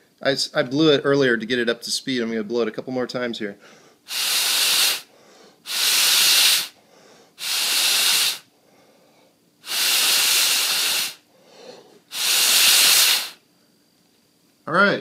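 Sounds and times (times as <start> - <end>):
breath puffs through a straw: 3.7 - 13.4.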